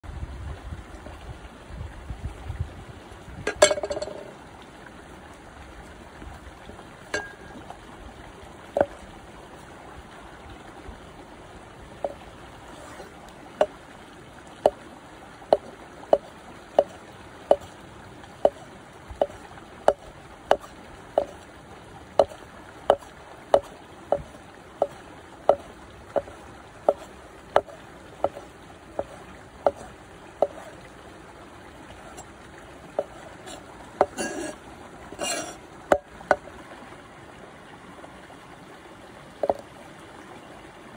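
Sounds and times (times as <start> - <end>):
stream water trickling: 0.0 - 40.9
knife chopping on wooden board: 19.2 - 21.4, 22.2 - 28.4, 29.0 - 30.7.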